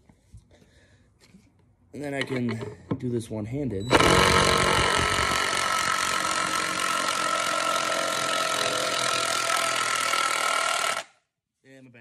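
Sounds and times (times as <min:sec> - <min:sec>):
cordless drill drilling wood: 0:03.9 - 0:11.1.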